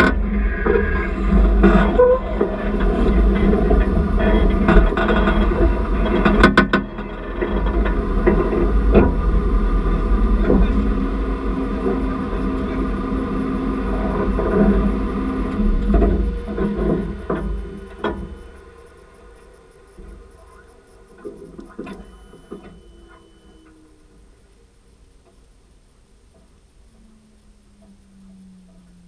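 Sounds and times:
off-road vehicle engines: 0.0 - 29.0.

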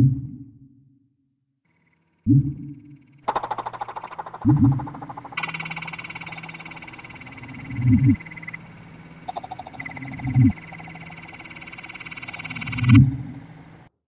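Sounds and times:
frog croaking: 1.8 - 13.9
high pulsing trill: 2.9 - 13.9.

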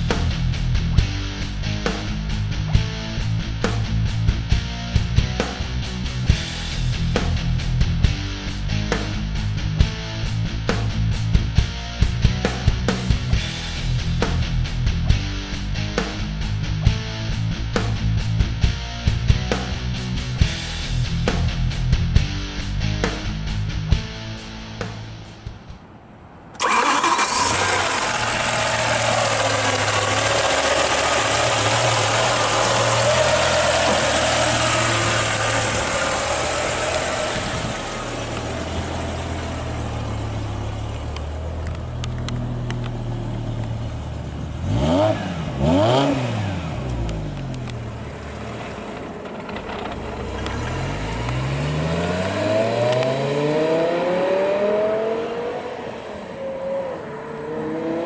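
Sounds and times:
car engine idling: 26.6 - 52.4
car accelerating away: 26.6 - 58.0
car engine revving: 26.6 - 58.0.

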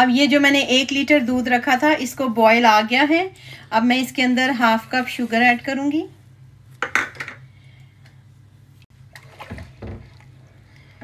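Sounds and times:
liquid sloshing in a pan: 8.9 - 11.0.

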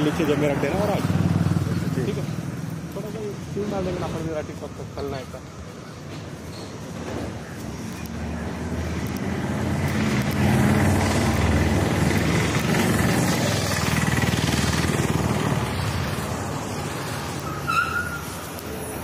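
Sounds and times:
road noise: 0.0 - 19.0
vehicle engine running: 8.1 - 17.4.

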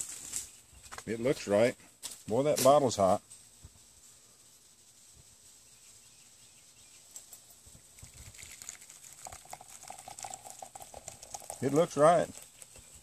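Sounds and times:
steady pouring tone: 7.8 - 13.0
coffee splashing into mug: 7.9 - 13.0.

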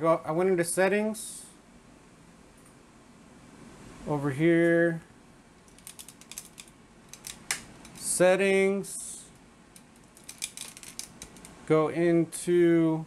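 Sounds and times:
keyboard typing: 5.7 - 8.0, 10.0 - 11.5.

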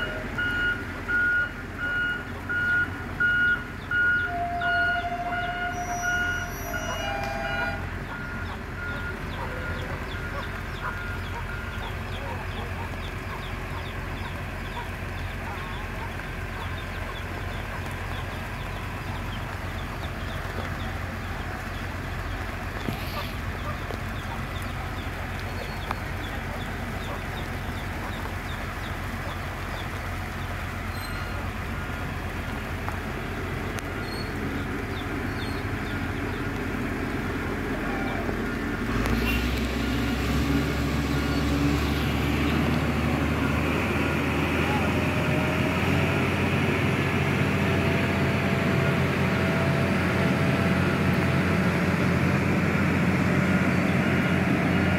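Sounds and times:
diesel machine engine: 0.0 - 54.9
chickens clucking: 6.8 - 31.5.

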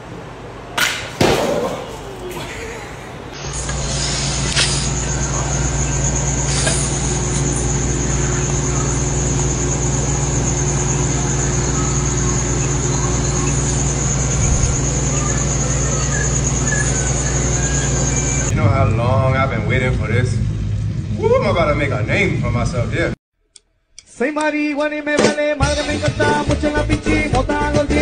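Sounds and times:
low mechanical hum: 0.0 - 23.2
high-pitched whine: 3.4 - 23.2.

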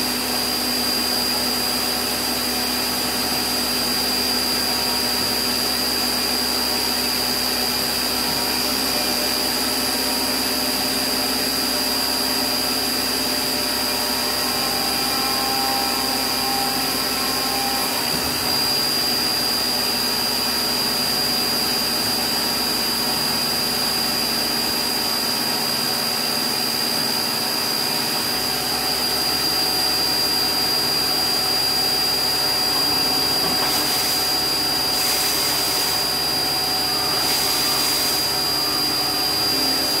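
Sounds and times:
spindle whine: 28.2 - 40.0
machine whirring hiss: 32.7 - 36.2.

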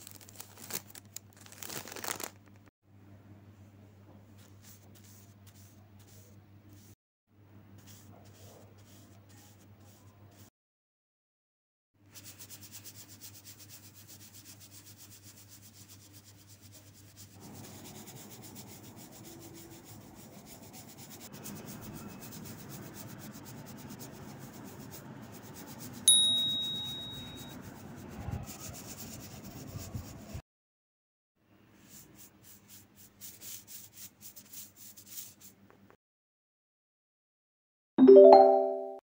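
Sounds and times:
brush rubbing over gold leaf: 4.4 - 7.0, 12.1 - 26.0, 31.8 - 35.6
sharp ding: 26.1 - 27.5.

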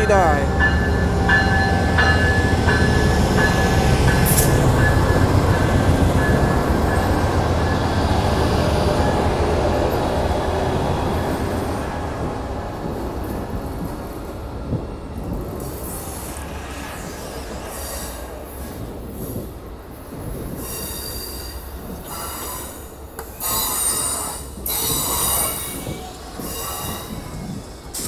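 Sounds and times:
train cars rumbling: 0.0 - 28.0
wheels squealing on rails: 20.5 - 28.0.

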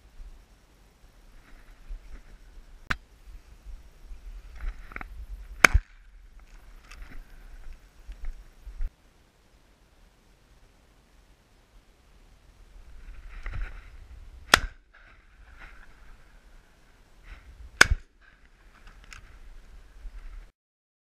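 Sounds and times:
shotgun shots: 14.5 - 14.8.

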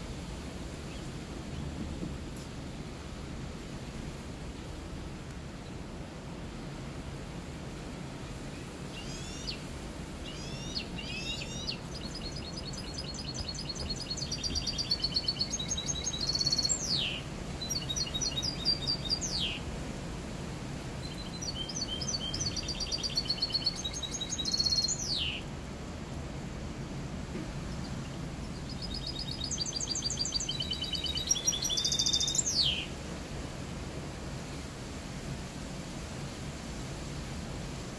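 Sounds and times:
finch singing trills: 10.3 - 19.6, 21.0 - 25.4, 27.7 - 32.9.

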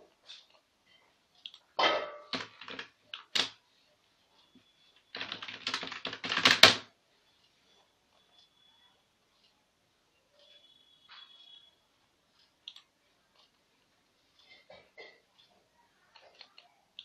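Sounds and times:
computer keyboard typing: 2.3 - 3.6, 5.1 - 6.9.

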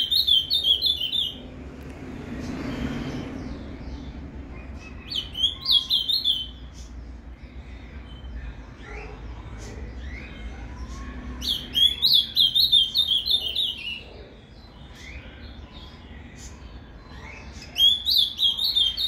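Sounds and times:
bird singing whistled notes: 4.6 - 6.8, 17.0 - 19.0.

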